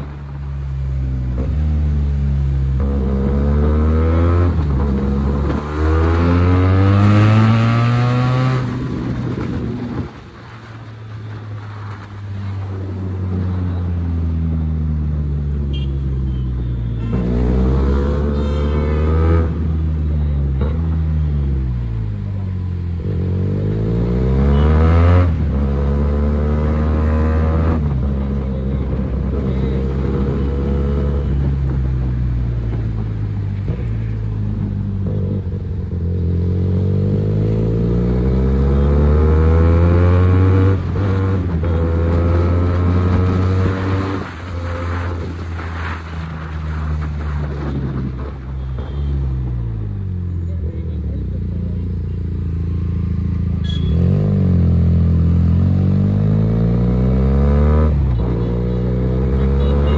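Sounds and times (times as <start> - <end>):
motorcycle engine revving: 1.3 - 10.0, 22.9 - 33.1, 33.7 - 46.0, 50.8 - 59.9.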